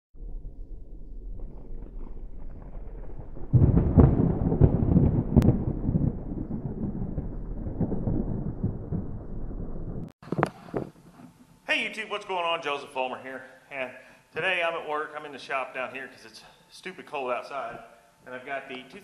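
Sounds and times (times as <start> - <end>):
low rolling thunder rumble: 0.2 - 10.1.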